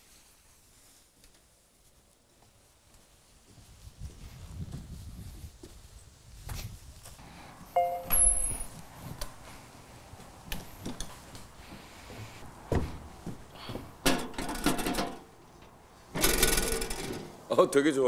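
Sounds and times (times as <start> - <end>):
brief pitched tone: 7.8 - 8.7
metal mailbox lid rattling: 14.1 - 15.3, 16.2 - 17.3.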